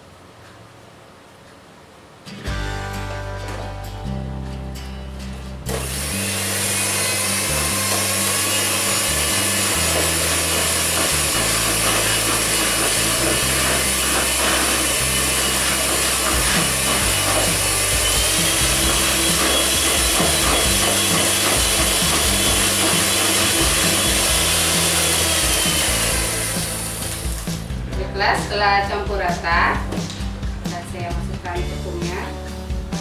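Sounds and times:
electric mixer whirring: 5.7s - 28.0s.

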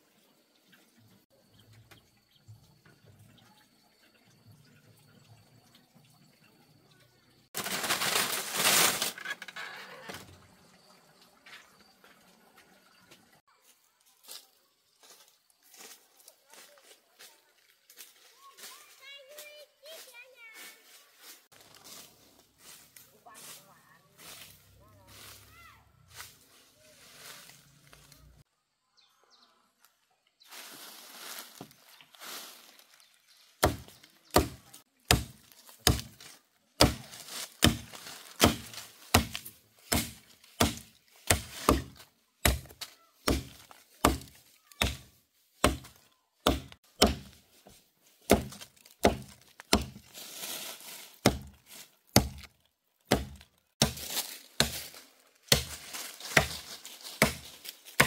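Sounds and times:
blade chopping wood: 33.6s - 47.4s, 48.2s - 50.1s, 51.2s - 58.0s.

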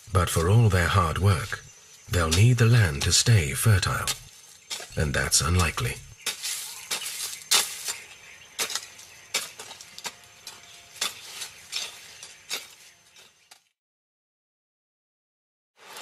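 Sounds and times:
hoe chopping into soil: 5.6s - 13.6s.

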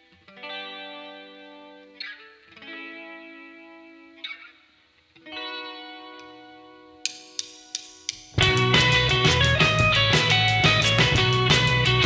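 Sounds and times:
electric guitar strummed chords: 8.3s - 12.0s.

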